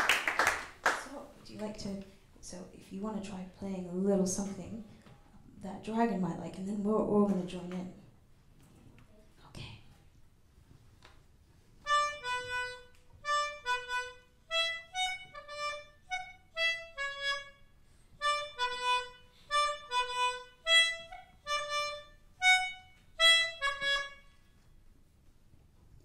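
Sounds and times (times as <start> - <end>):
melodica notes: 11.8 - 24.5.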